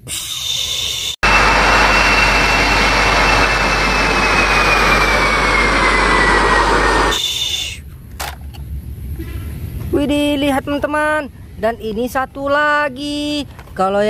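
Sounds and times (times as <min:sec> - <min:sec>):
jet engine whine: 0:00.0 - 0:07.9
jet airliner passing overhead: 0:00.1 - 0:07.8.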